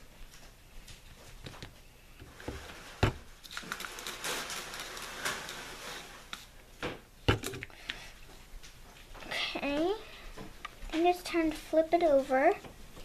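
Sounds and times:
paper napkins rustling: 2.3s - 6.5s.

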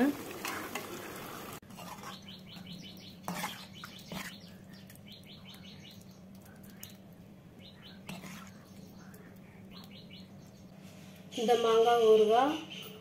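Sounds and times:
small bird chirping: 2.0s - 10.8s.

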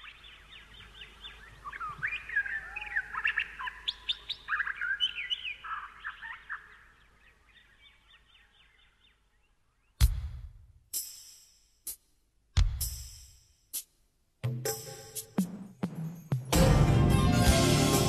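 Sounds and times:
songbirds chirping: 0.0s - 10.3s.

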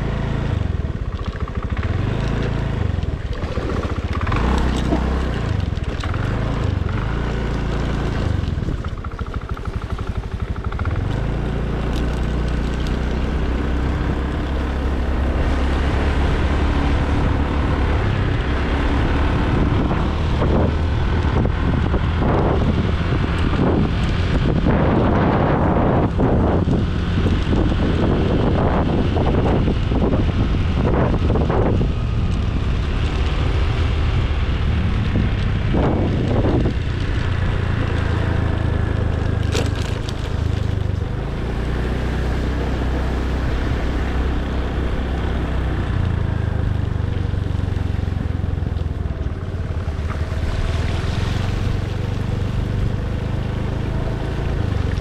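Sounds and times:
scooter engine running: 0.0s - 55.0s
wind buffeting microphone: 0.0s - 55.0s.

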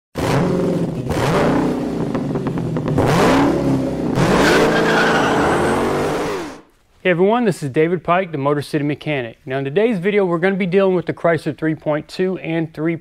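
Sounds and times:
car engine revving: 0.2s - 6.7s.

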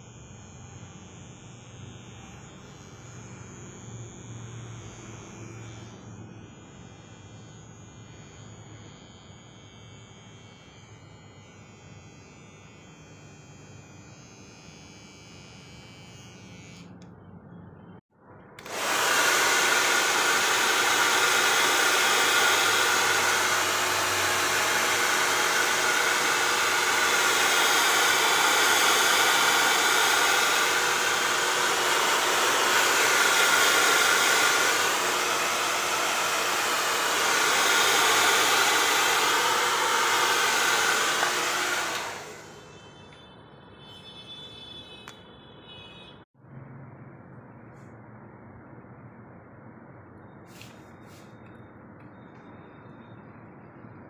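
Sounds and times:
hair dryer blowing: 18.6s - 42.7s.

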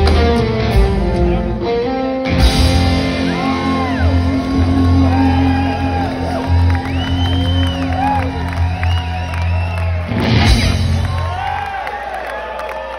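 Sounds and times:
rock band holding low chord: 0.0s - 11.7s
audience whooping and shouting: 3.0s - 12.9s.

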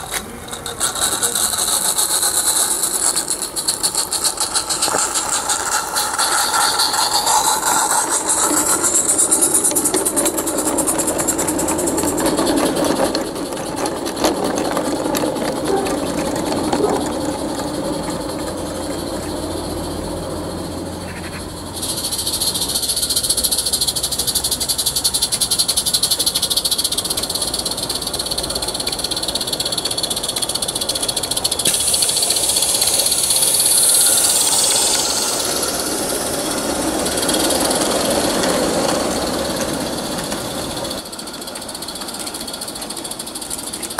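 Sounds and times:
small wheels rattling on track: 0.0s - 43.9s
steam locomotive chuffing: 0.0s - 43.9s
steam hiss: 21.6s - 43.9s.

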